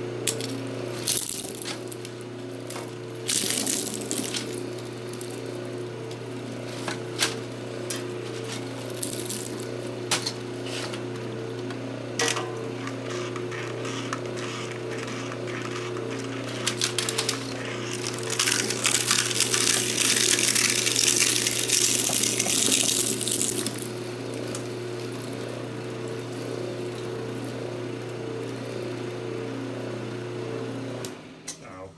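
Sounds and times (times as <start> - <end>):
shredder grinding plastic: 0.0 - 31.4
shredder motor humming: 0.0 - 31.6
plastic cracking: 15.9 - 23.9.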